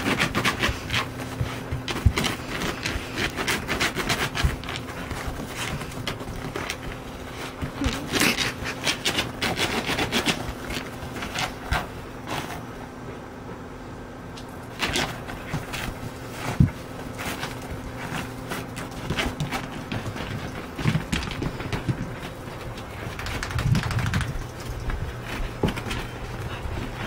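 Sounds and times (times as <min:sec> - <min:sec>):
dog rubbing on carpet: 0:00.0 - 0:12.8.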